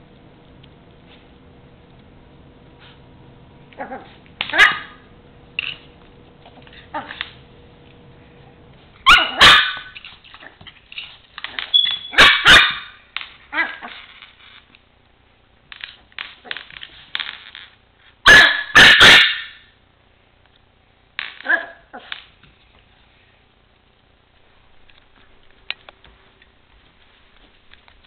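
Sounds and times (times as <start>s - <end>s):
puppy play-barking: 3.7s - 5.1s, 6.6s - 7.4s, 9.0s - 10.6s, 11.5s - 14.0s, 18.2s - 19.6s, 21.4s - 22.2s.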